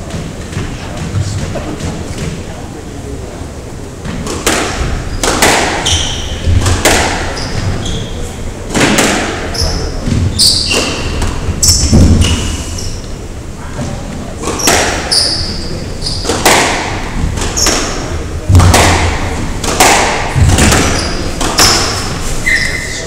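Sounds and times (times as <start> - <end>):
squash ball struck by racket: 4.0 - 8.1, 8.7 - 13.1, 14.4 - 22.4
shoes squeaking on wooden floor: 5.0 - 6.6, 7.2 - 8.4, 9.5 - 13.2, 13.8 - 16.4, 20.5 - 23.0
ball thudding off walls: 16.3 - 22.0.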